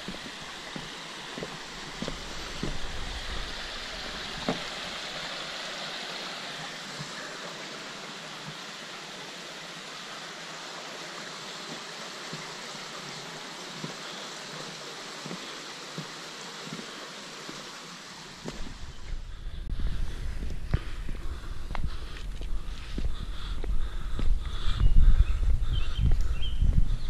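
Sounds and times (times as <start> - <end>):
footsteps on wooden planks: 0.0 - 3.4, 4.4 - 4.8, 11.6 - 17.7, 18.4 - 19.2, 20.3 - 26.9
water rushing over rocks: 0.0 - 19.2.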